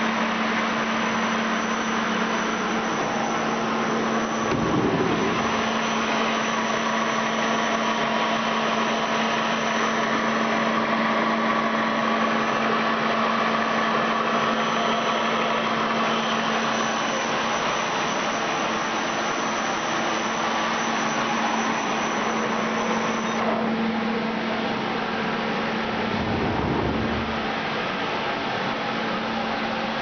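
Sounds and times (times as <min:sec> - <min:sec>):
lathe machine hum: 0:00.0 - 0:28.8
low thump: 0:04.5 - 0:05.8, 0:26.1 - 0:27.6.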